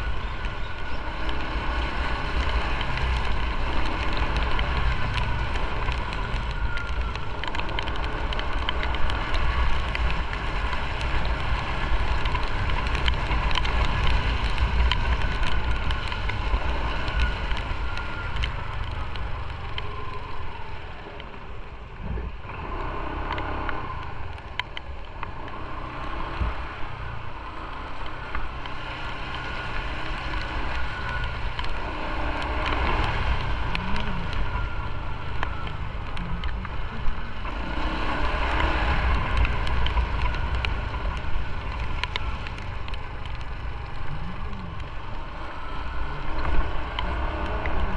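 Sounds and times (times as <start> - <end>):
motorcycle engine running: 0.0 - 21.6
tyres on wet road: 0.0 - 47.9
wind on microphone: 0.0 - 47.9.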